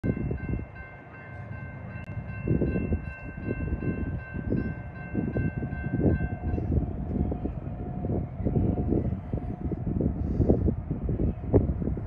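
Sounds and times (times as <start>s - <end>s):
railroad crossing bell ringing: 0.0s - 6.8s.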